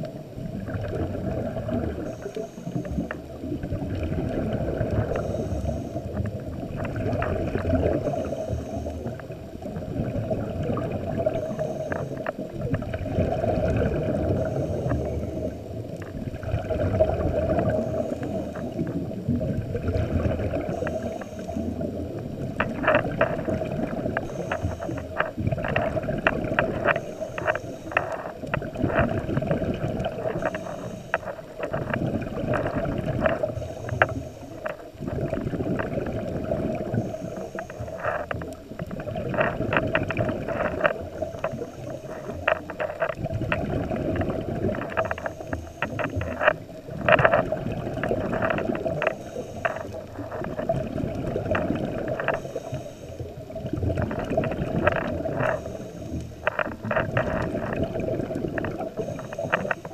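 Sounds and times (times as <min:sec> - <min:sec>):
exhaled bubbles underwater: 0:00.0 - 0:59.9
steady hum: 0:00.0 - 0:59.9
diver breathing through regulator: 0:04.8 - 0:06.3, 0:07.9 - 0:09.2, 0:11.3 - 0:12.3, 0:13.7 - 0:15.6, 0:17.1 - 0:19.0, 0:20.5 - 0:22.0, 0:23.4 - 0:34.8, 0:35.6 - 0:38.3, 0:39.4 - 0:43.0, 0:48.1 - 0:50.7, 0:51.6 - 0:53.3, 0:54.2 - 0:57.8, 0:58.8 - 0:59.9.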